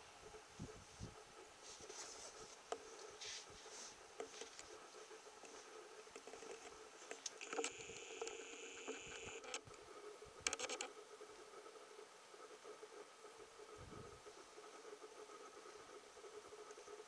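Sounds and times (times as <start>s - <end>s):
faint hum: 0.0s - 17.0s
camera handling ticks: 6.1s - 9.6s
sharp clicks: 6.2s - 9.7s
camcorder zoom motor whirring: 7.2s - 9.6s.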